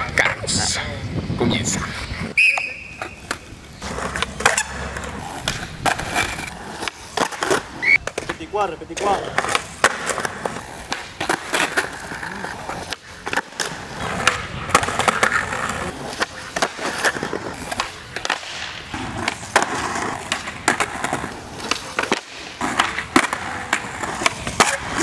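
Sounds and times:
skateboards rolling on concrete: 0.0 - 25.0
skateboard tail pops and slaps: 5.4 - 8.4, 9.0 - 11.8, 16.1 - 25.0.

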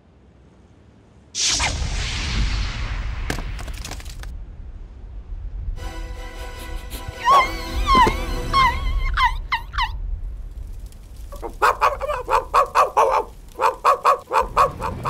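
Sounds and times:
cartoon dog yapping fast: 7.2 - 10.0, 11.4 - 15.0
cartoon dog yelping: 7.2 - 10.0, 11.4 - 15.0.

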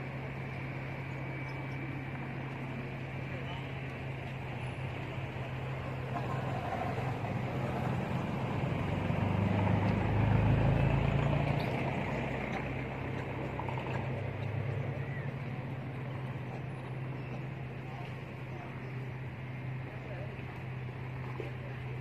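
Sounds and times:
vehicle engine hum: 0.0 - 22.0.

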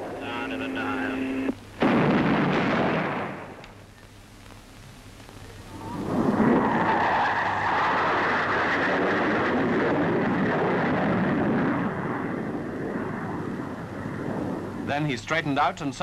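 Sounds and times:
jet fighter flying low past: 5.7 - 14.9.

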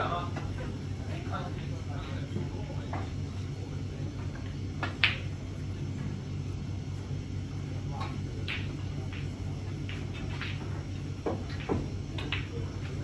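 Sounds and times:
low steady hum: 0.0 - 13.0
snooker balls clicking: 4.8 - 5.3, 7.9 - 13.0.

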